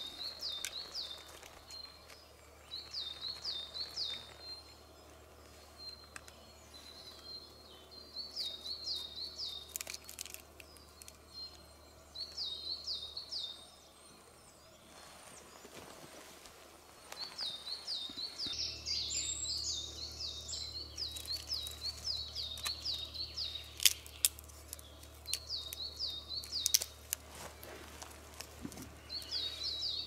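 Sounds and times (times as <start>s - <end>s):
songbird chirping: 0.0s - 30.0s
kindling snapping: 23.6s - 27.3s.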